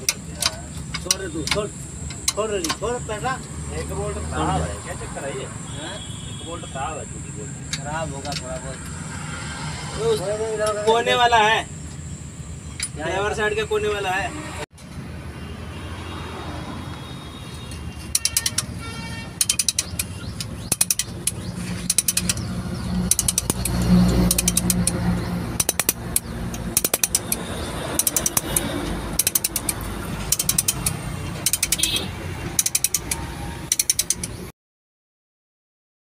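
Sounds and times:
ratchet wrench clicking: 0.0s - 3.6s, 18.0s - 34.5s.

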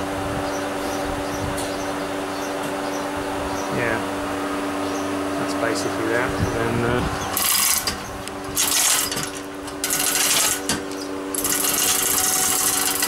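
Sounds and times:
steel chain rattling through hoist: 7.4s - 8.0s, 8.6s - 13.0s.

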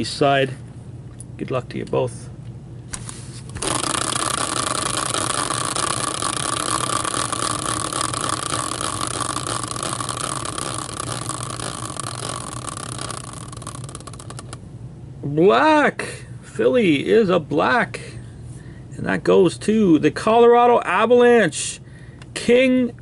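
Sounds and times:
prize wheel ticking whir: 3.5s - 14.6s.

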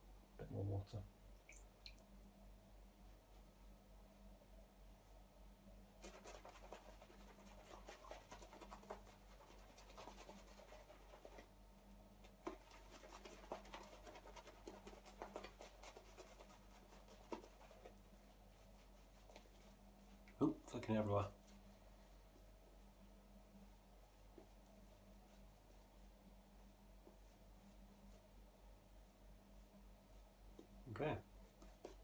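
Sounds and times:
shaving brush scrubbing lather: 6.0s - 11.5s, 12.2s - 21.4s.

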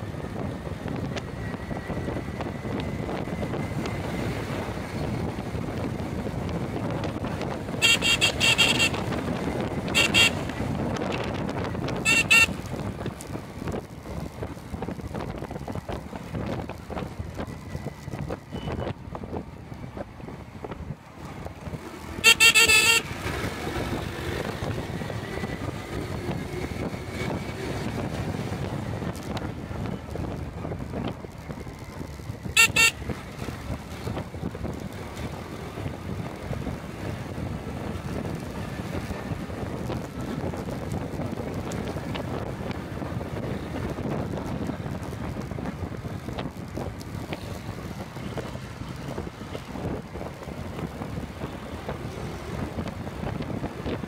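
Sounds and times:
wind buffeting microphone: 0.0s - 22.2s, 23.0s - 54.0s
road noise from traffic: 0.0s - 54.0s
vehicle horn short beeps: 7.8s - 9.0s, 10.0s - 10.4s, 12.1s - 12.6s, 18.5s - 18.9s, 22.2s - 23.0s, 32.6s - 33.0s.

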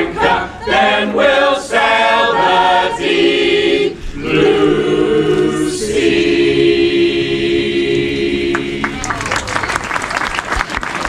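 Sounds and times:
choir singing unaccompanied: 0.0s - 9.2s
applause: 8.5s - 11.0s.

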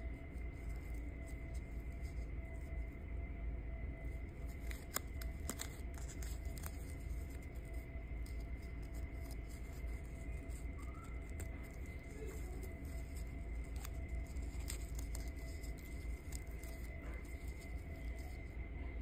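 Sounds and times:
faint high whine: 0.0s - 19.0s
steady low hum: 0.0s - 19.0s
hands handling a cord: 8.2s - 18.5s.

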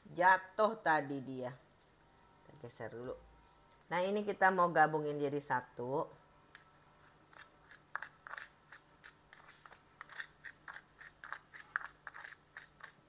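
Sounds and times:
metal spoon scraping a dish: 7.3s - 13.0s.

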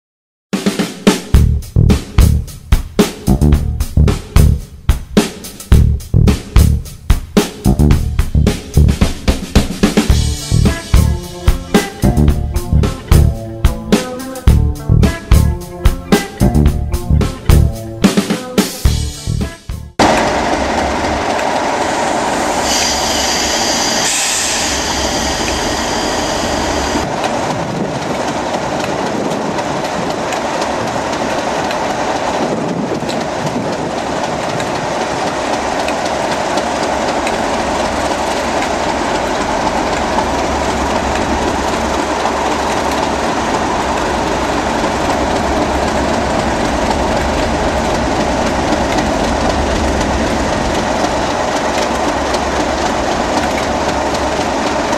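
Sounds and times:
high whine: 1.4s - 4.8s, 5.7s - 18.3s, 18.9s - 27.2s
diesel locomotive engines idling: 6.8s - 18.0s, 20.0s - 54.9s.

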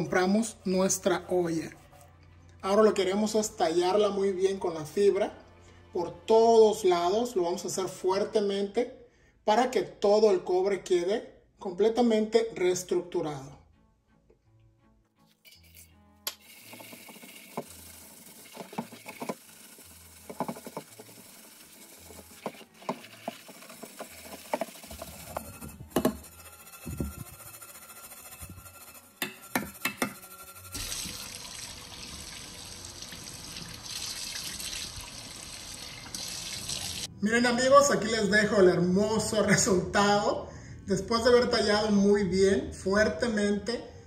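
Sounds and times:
tap water running into sink: 16.3s - 25.2s, 30.8s - 37.1s
pan scrubbed with scouring pad: 16.4s - 31.8s
pan knocking: 20.2s - 21.2s, 22.0s - 30.9s.

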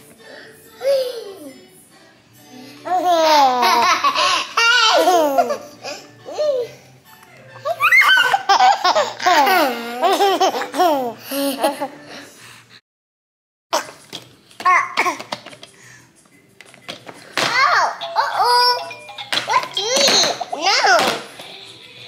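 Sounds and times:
baby laughing: 2.9s - 6.7s, 7.6s - 12.0s.

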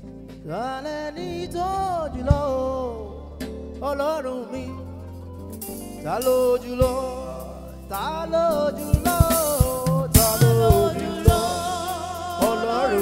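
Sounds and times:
man singing gospel: 0.4s - 4.9s, 6.0s - 13.0s
sharp drum hits: 9.0s - 12.9s.

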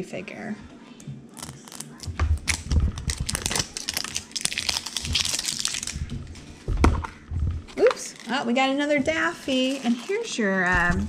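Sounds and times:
plastic crinkling: 1.4s - 6.7s, 7.5s - 11.0s.

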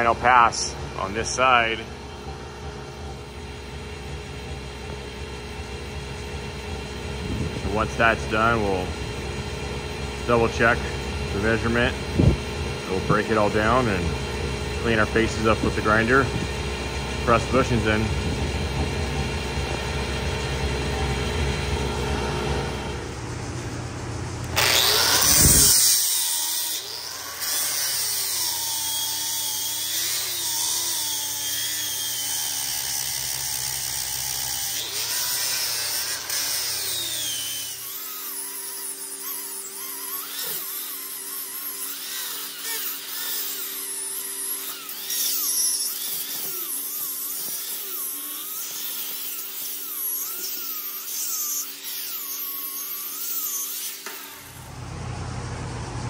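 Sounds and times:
die grinder grinding steel: 24.4s - 54.7s.

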